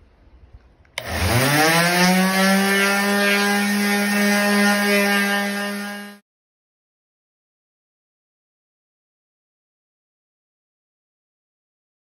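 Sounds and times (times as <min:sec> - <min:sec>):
electric sander motor whining: 0:01.0 - 0:06.2.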